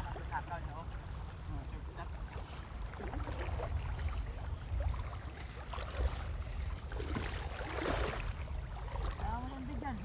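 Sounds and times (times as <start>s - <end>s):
low wind rumble on microphone: 0.0s - 10.0s
water sloshing from wading: 0.0s - 10.0s.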